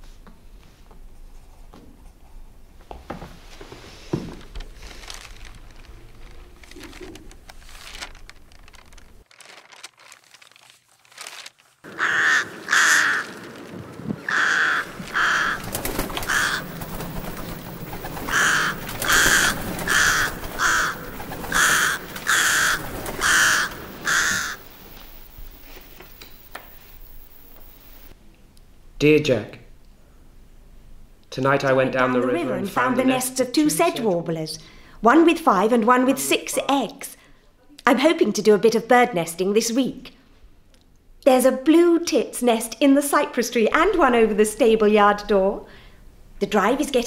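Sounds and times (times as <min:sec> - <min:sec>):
rooks cawing: 0:11.8 - 0:13.6, 0:14.2 - 0:24.9.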